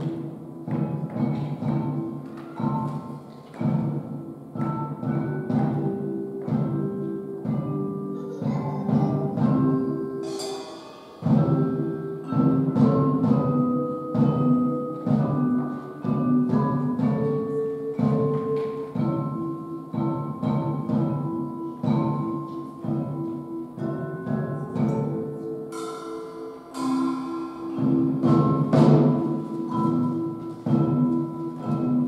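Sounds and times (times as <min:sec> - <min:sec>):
drum kit beat: 0:00.0 - 0:32.0
keyboard chords: 0:00.0 - 0:32.0
cymbal crash: 0:10.2 - 0:11.9, 0:25.7 - 0:29.4.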